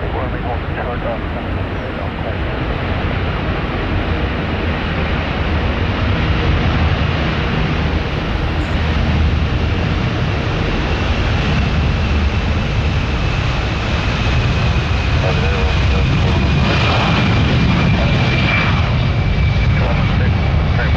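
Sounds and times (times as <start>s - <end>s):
jet engine roar: 0.0s - 20.9s.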